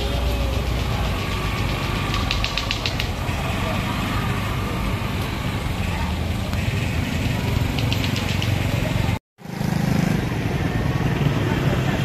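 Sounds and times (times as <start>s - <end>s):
faint crowd voices: 0.0s - 9.2s
vehicle engines idling: 0.0s - 12.0s.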